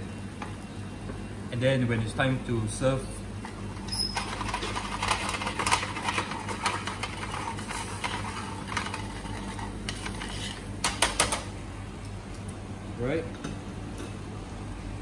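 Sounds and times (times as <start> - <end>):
utensil scraping in a pan: 3.4 - 11.2.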